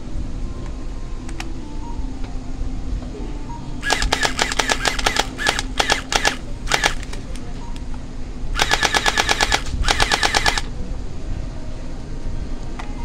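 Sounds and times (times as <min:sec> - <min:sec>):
toy blaster firing full auto: 0:03.8 - 0:07.2, 0:08.6 - 0:10.7.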